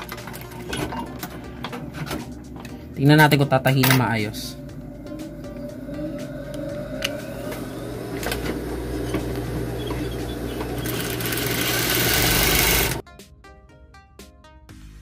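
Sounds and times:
background music: 0.0 - 15.0
sewing machine stitching: 8.2 - 13.0.

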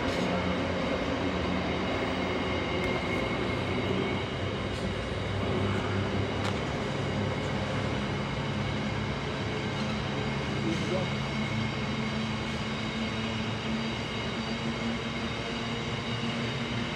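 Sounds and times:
high whine: 0.0 - 16.6
train wheels rumbling on rail: 0.0 - 16.9.

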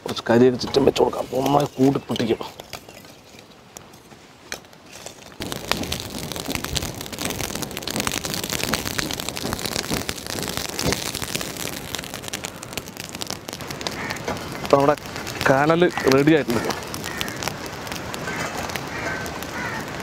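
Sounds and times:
charcoal crackling and popping: 0.0 - 20.0
charcoal pieces clicking: 5.4 - 19.8.

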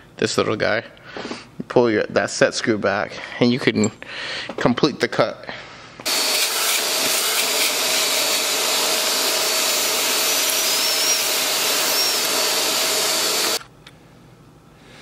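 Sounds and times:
power drill drilling: 6.0 - 13.6.

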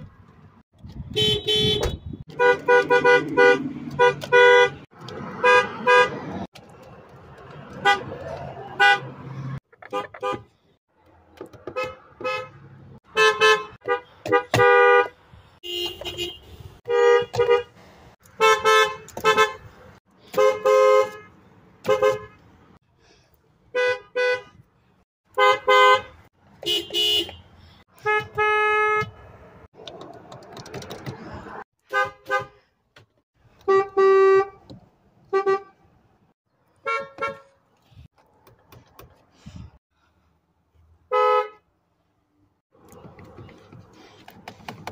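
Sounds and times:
car horns tooting: 1.1 - 6.5, 7.7 - 10.6, 11.4 - 22.5, 23.7 - 24.6, 25.3 - 29.3, 31.8 - 32.6, 33.5 - 35.9, 36.8 - 37.6, 41.1 - 41.7.

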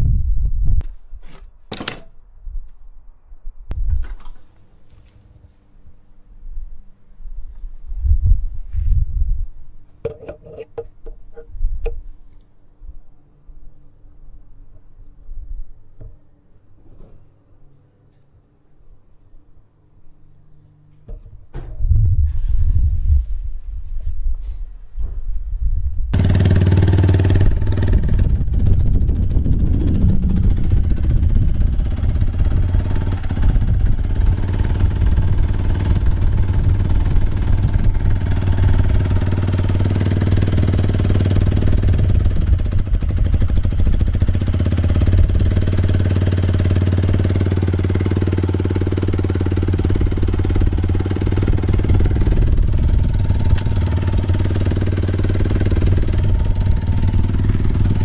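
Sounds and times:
motorcycle engine idling: 26.2 - 58.0.

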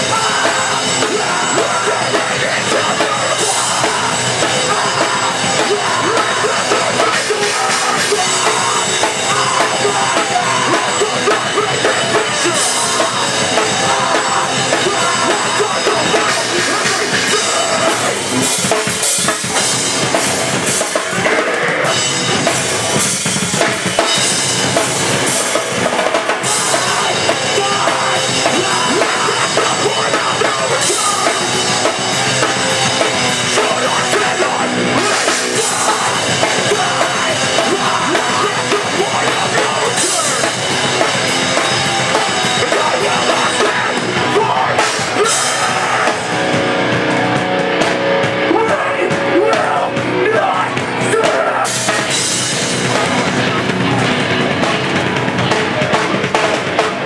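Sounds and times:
drum kit: 0.0 - 57.0
electric guitar: 0.0 - 57.0.

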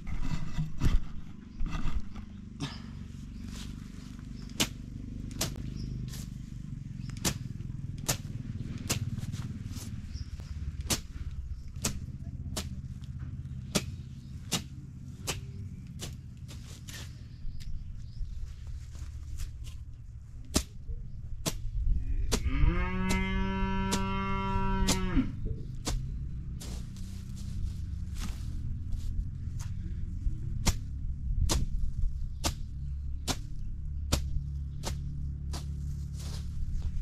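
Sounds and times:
steady low rumble: 0.0 - 37.0
blade swishing through grass: 3.3 - 17.6, 18.5 - 20.8, 25.7 - 29.8, 30.6 - 37.0.

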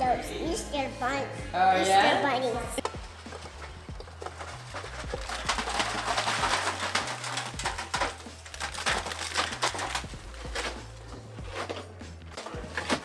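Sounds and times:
shingles scraping and clattering: 2.8 - 13.0.

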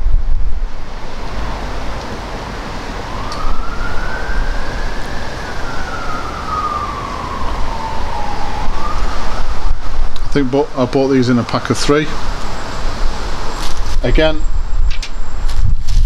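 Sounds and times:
wind on microphone: 0.0 - 10.8, 12.1 - 16.0
siren wailing: 2.2 - 11.2.

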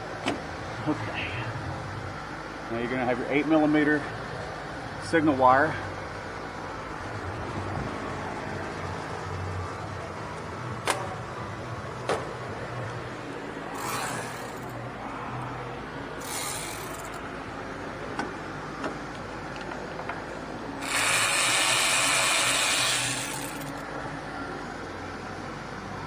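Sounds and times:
cordless power tool whirring: 20.8 - 23.8.

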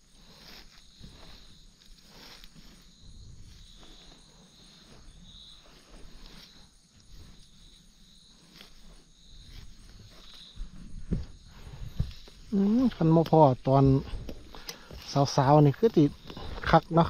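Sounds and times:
faint rustles and knocks: 0.0 - 17.0
insects chirping trills: 0.0 - 17.0.

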